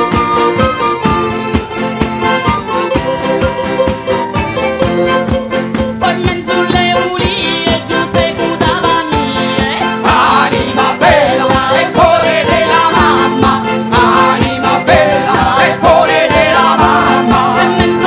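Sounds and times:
wavering melody line: 0.0 - 7.6
accordion chords: 0.0 - 18.0
fast percussion with jingles: 0.0 - 18.0.

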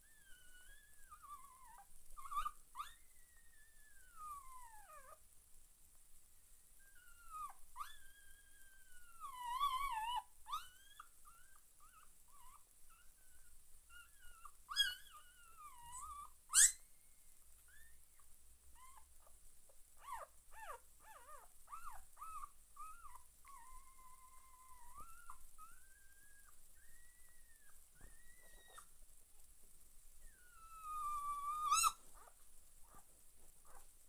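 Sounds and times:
puppies whimpering and squeaking: 0.2 - 5.2, 6.9 - 16.9, 20.0 - 28.9, 30.3 - 32.3.

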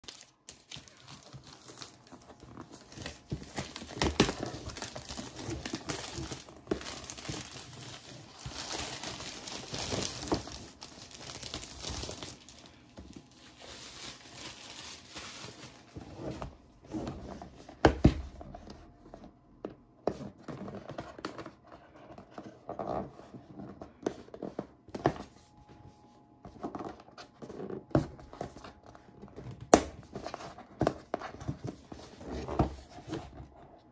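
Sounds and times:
plastic wrap crinkling and tearing: 0.0 - 16.6.

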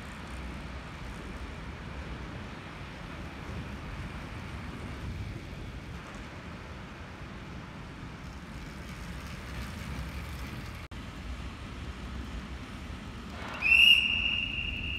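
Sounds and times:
bicycles rolling on wooden boards: 0.0 - 10.9
high steady whistling tone: 13.4 - 14.9.

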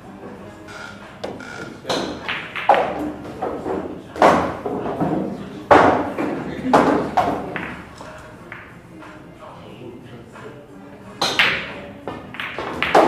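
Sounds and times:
sharp knocks echoing: 0.7 - 4.7.

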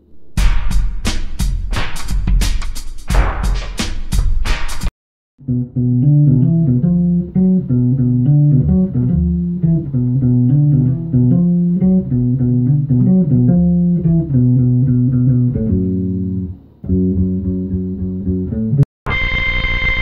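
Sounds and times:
electric bass plucked melody: 5.4 - 18.9.

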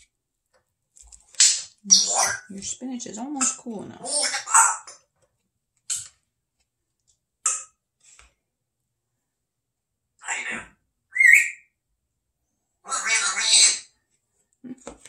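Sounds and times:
parrot making sharp sounds: 1.4 - 2.5, 3.4 - 5.0, 10.2 - 11.6, 12.8 - 13.9
parrot whistle rising in pitch: 11.1 - 11.6.

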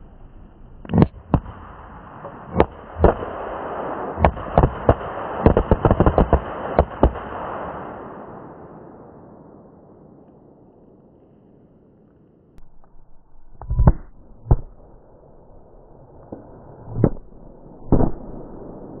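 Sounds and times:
firecracker bangs: 1.0 - 8.0.

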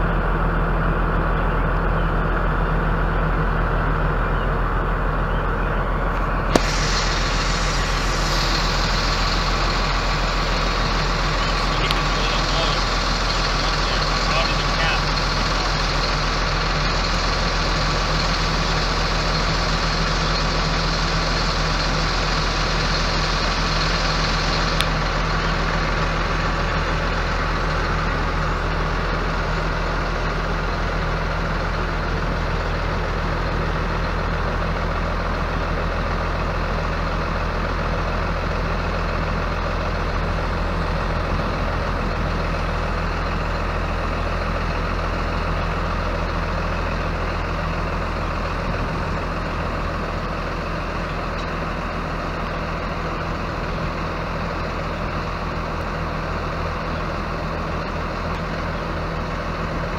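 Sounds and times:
diesel truck engine idling: 0.0 - 59.9
hiss: 6.6 - 27.9.

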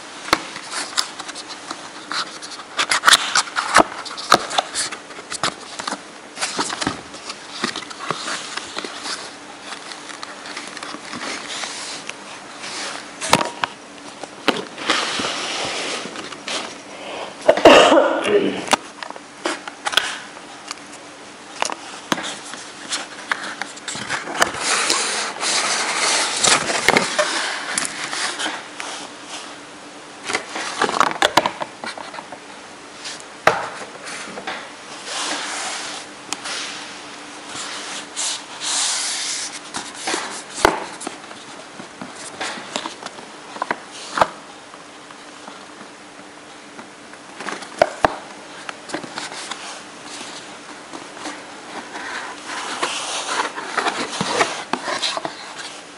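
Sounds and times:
cardboard box rustling and scraping: 14.5 - 16.8, 22.2 - 28.6, 51.1 - 55.8
plastic wrapping rustling: 21.5 - 29.1.

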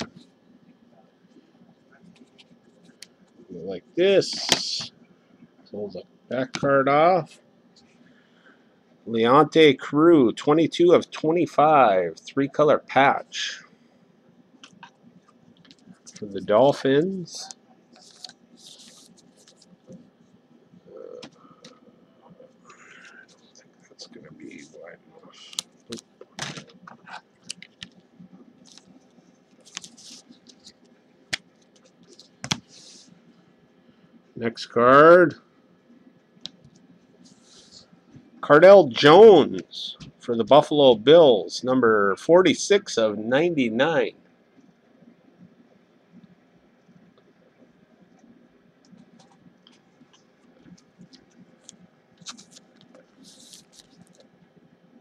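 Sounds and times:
card scraping rustle: 17.9 - 20.0, 29.6 - 30.8, 51.6 - 54.3
fingers handling trading card: 29.6 - 33.0, 51.0 - 54.2.

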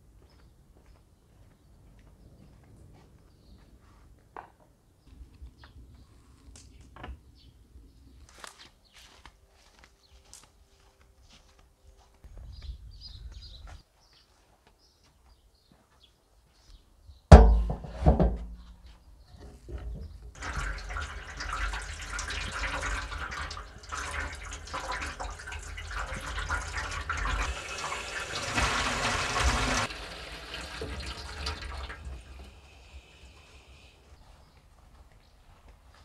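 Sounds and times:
loud knocks: 17.3 - 18.6
tap water running and splashing: 20.3 - 32.6.

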